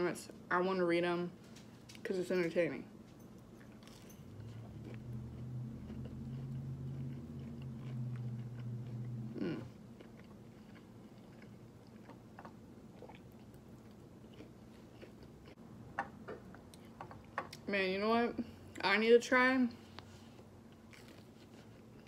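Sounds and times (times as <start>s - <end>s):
low steady hum: 0.0s - 22.0s
person chewing crunchy food: 3.4s - 15.6s, 20.2s - 22.0s.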